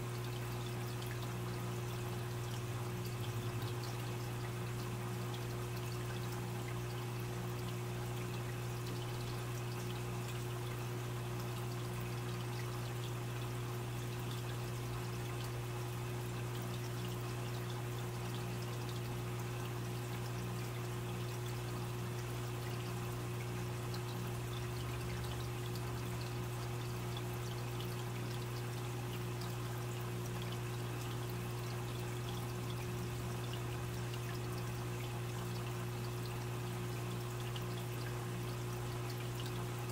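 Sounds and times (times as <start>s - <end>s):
low pump hum: 0.0s - 39.9s
water trickling and splashing: 0.0s - 39.9s.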